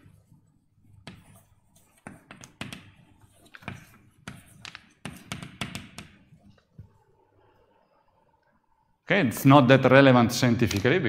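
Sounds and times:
chalk tapping and scraping on blackboard: 0:00.0 - 0:06.7.

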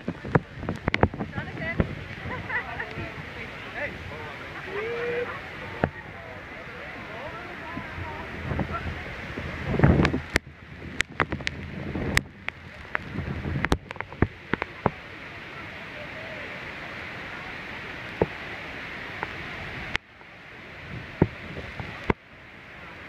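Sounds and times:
waterfall roaring: 0:00.0 - 0:23.0
clicks and pops on microphone: 0:10.0 - 0:15.0.

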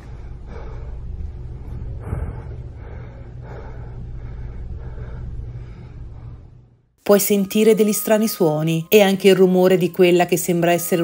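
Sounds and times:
man breathing hard and fast: 0:00.0 - 0:06.8
steady low rumble: 0:00.0 - 0:07.0.

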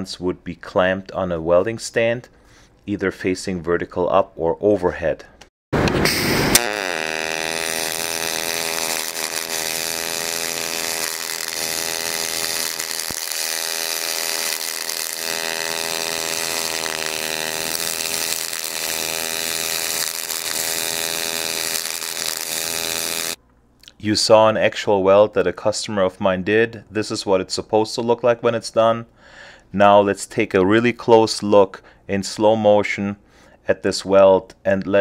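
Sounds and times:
welding arc buzzing: 0:05.8 - 0:23.4.

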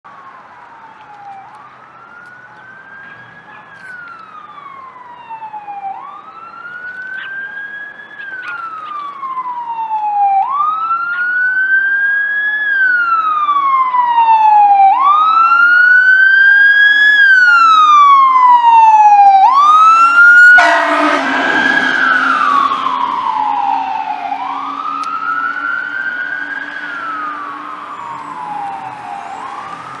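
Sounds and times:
fire engine siren wailing: 0:00.1 - 0:30.0
air horn blast: 0:20.5 - 0:23.2.

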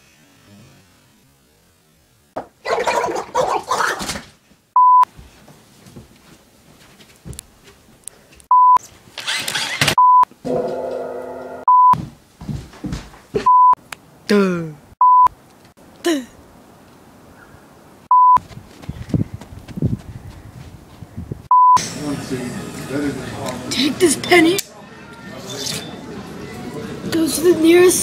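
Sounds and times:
buzzy held tone: 0:10.4 - 0:11.7
electronic beep tone: 0:11.2 - 0:12.0, 0:18.1 - 0:18.4, 0:21.5 - 0:21.8.

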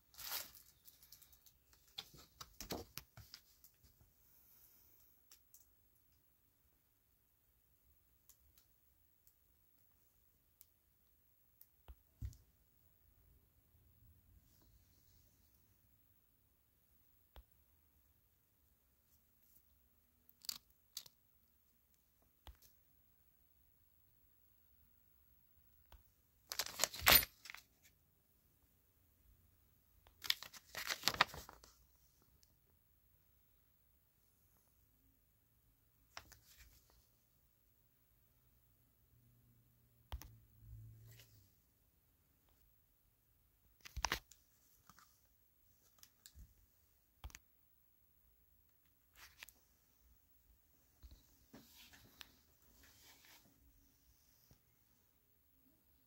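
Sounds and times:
plastic bag and paper rustling: 0:00.1 - 0:02.8, 0:30.2 - 0:31.7.

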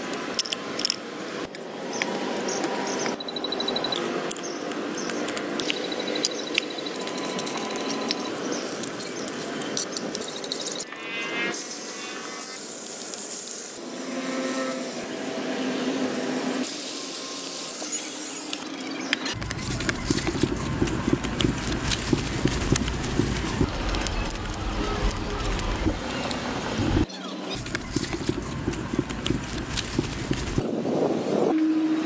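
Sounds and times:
meat sizzling and bubbling in pot: 0:19.4 - 0:27.0, 0:27.6 - 0:30.6.

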